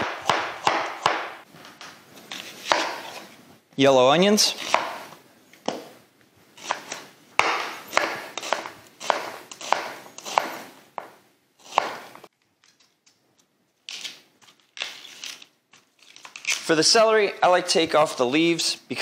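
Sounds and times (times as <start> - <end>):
knife cutting onion on board: 0.0 - 1.4, 2.3 - 3.3, 4.5 - 5.1, 6.6 - 10.8, 11.6 - 12.2.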